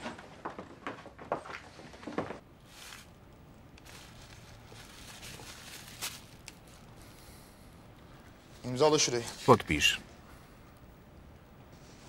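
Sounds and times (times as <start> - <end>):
plastic bag rustling: 2.6 - 3.2, 3.8 - 7.0.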